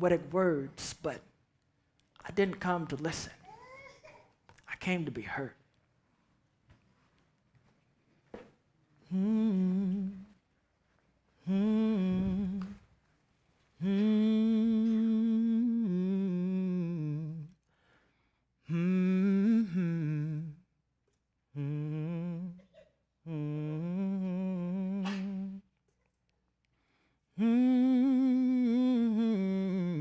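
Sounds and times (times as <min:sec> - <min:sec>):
man humming: 0:09.0 - 0:10.4, 0:11.4 - 0:12.8, 0:13.8 - 0:17.6, 0:18.6 - 0:20.7, 0:21.5 - 0:25.7, 0:27.4 - 0:30.0.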